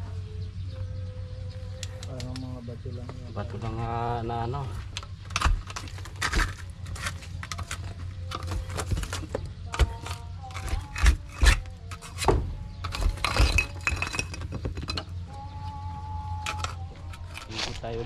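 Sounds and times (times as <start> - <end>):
stones knocking and clinking: 4.9 - 15.2, 16.4 - 18.0.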